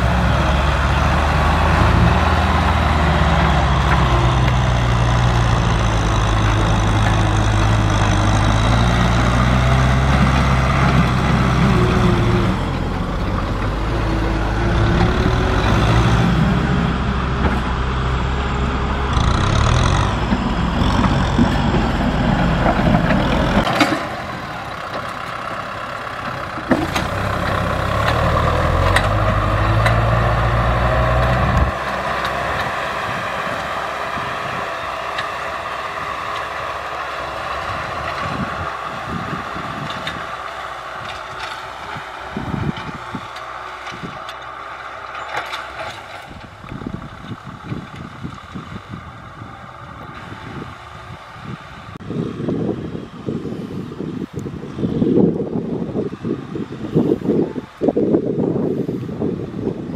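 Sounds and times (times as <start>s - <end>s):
tractor diesel engine running: 0.0s - 59.9s.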